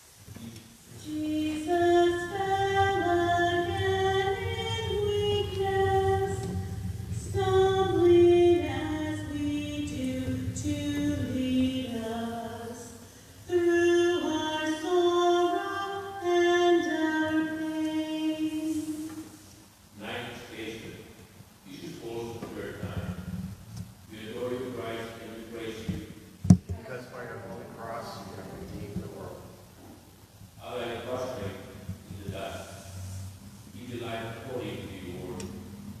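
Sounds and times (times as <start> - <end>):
woman singing a hymn: 0.9 - 19.5.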